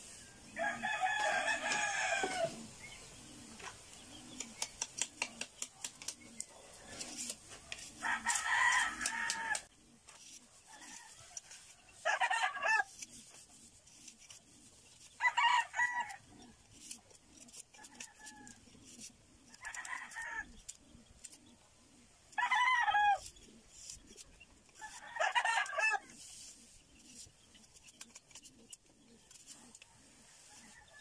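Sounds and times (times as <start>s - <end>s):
rooster crowing: 0.6s - 2.6s
blade scraping bamboo: 4.2s - 21.6s, 22.5s - 31.0s.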